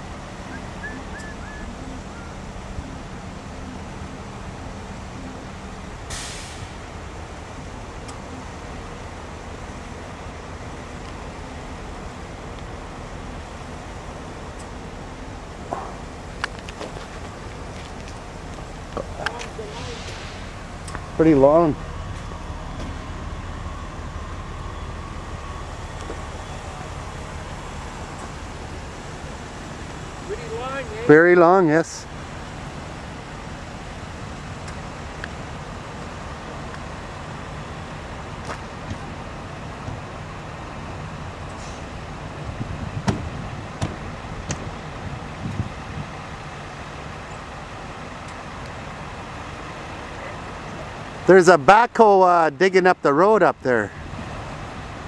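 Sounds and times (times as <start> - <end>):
faint steady whine: 0.0 - 42.9
vehicle engines idling: 0.0 - 55.0.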